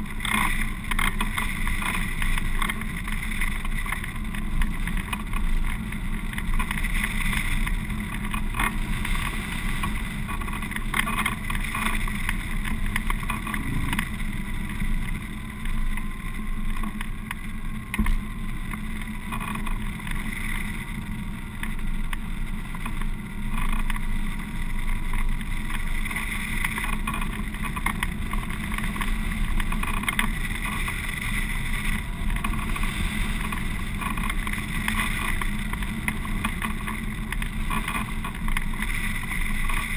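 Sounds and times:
airflow rushing over microphone: 6.8 - 16.5.

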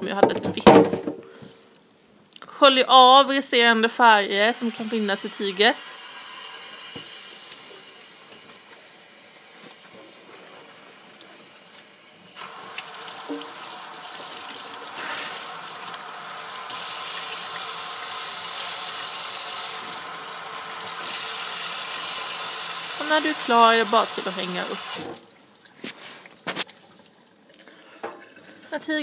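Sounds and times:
tap water splashing in sink: 6.8 - 7.7, 12.4 - 15.2.

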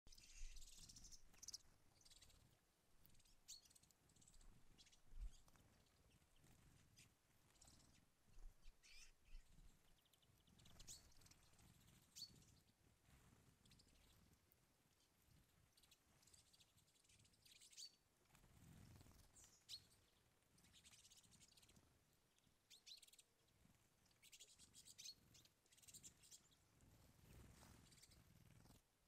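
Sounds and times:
faint low rumble: 0.1 - 17.0
birds chirping: 0.1 - 18.1, 18.7 - 28.8.

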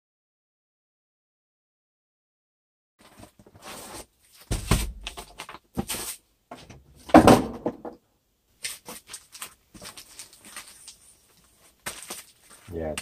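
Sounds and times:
plastic and cardboard rustling: 3.0 - 7.7, 8.6 - 13.0
box thumps: 4.5 - 6.0, 7.0 - 8.0.

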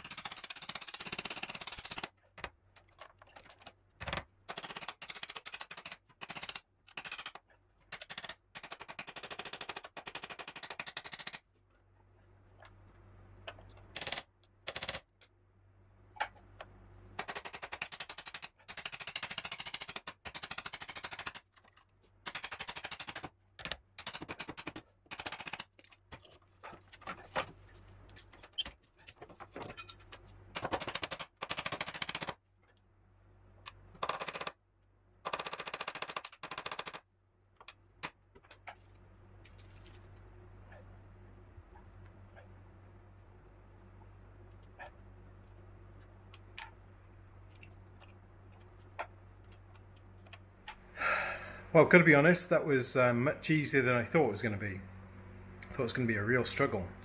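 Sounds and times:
rapid sharp clicking of hand tool: 0.0 - 2.2, 3.4 - 11.4, 14.0 - 15.1, 17.2 - 21.6, 22.2 - 25.9, 30.6 - 32.4, 34.0 - 34.6, 35.2 - 37.0.

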